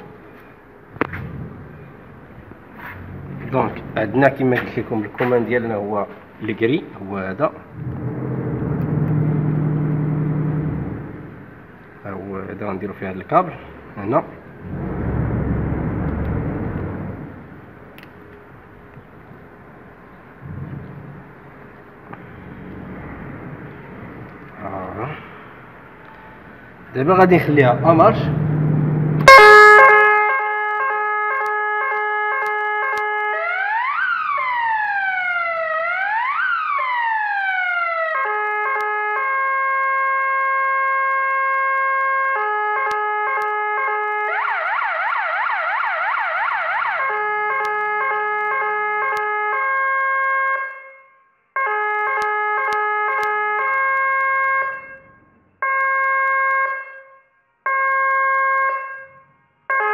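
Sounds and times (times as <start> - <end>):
electronic alarm siren: 7.8 - 11.5, 27.2 - 59.9.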